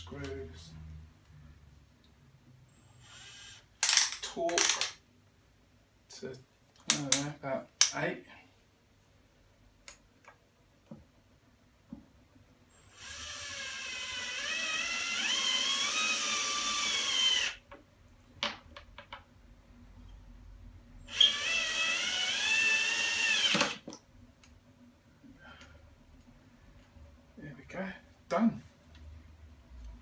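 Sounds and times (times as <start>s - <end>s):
drill motor whine: 2.9s - 3.6s, 12.8s - 17.6s, 21.0s - 23.8s.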